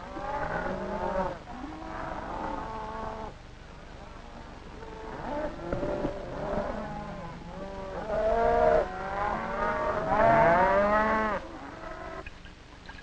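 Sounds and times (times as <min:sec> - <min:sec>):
livestock bleating and mooing: 0:04.9 - 0:12.2.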